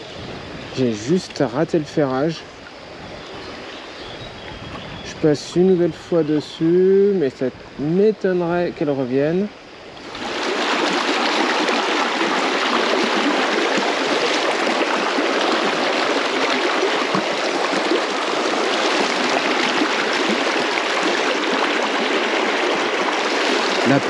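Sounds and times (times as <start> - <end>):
river rushing over stones: 10.0 - 24.0.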